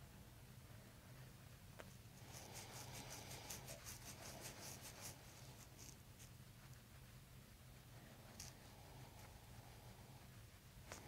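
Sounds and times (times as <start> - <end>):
faint low hum: 0.0 - 11.0
fingertips rubbing through hair: 1.8 - 7.2.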